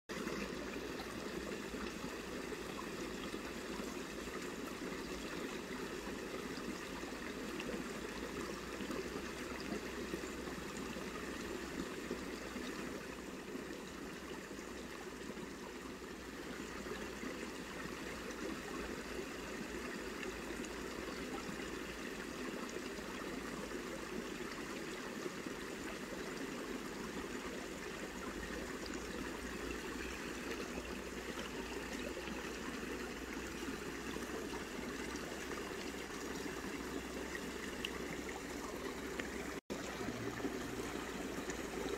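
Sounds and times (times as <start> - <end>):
stream water rushing: 24.3 - 41.9.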